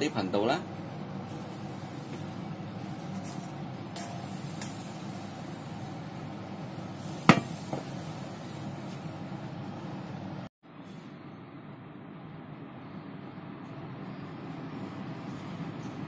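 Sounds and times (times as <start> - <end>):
wok knocking on glass hob: 7.3 - 7.9.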